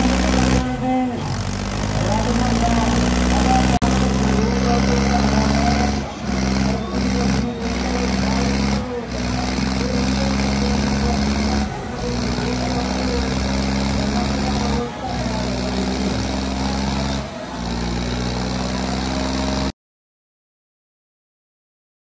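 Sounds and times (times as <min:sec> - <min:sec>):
diesel tractor engines running hard: 0:00.0 - 0:19.8.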